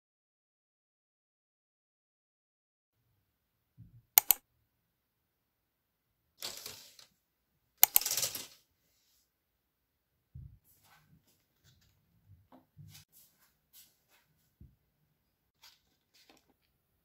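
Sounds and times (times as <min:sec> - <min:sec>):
sharp clicks: 0:04.2 - 0:04.4, 0:07.8 - 0:08.2.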